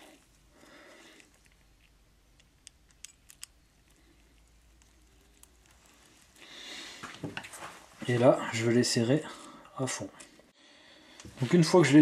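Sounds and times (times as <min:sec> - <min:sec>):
small metallic clicks: 0:01.1 - 0:06.4
soft rustle: 0:03.8 - 0:08.6.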